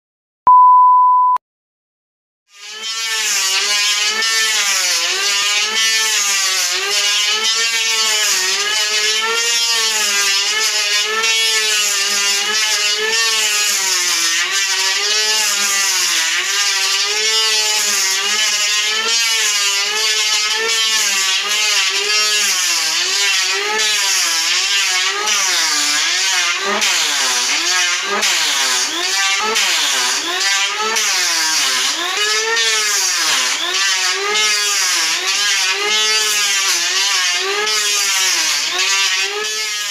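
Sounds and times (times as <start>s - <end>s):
short beep: 0.5s - 1.4s
electric hand planer cutting wood: 2.5s - 39.9s.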